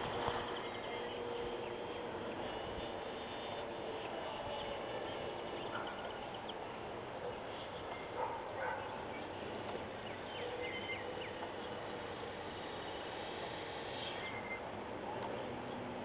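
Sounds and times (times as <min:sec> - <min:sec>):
outdoor hiss: 0:09.4 - 0:15.6.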